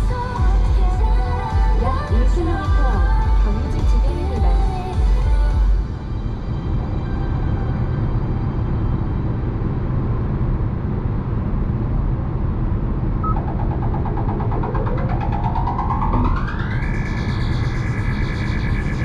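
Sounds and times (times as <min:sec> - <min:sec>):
low droning electronic rumble: 0:00.0 - 0:19.0
rising synth sweep: 0:13.0 - 0:19.0.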